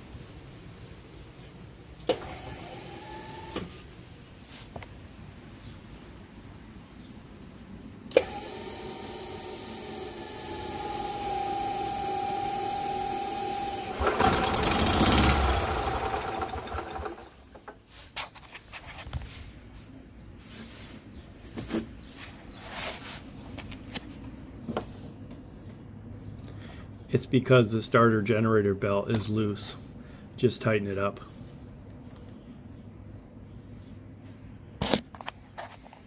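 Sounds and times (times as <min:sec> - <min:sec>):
starter generator whine: 0:02.0 - 0:03.9, 0:08.1 - 0:17.8
golf cart engine running rough: 0:08.2 - 0:17.4.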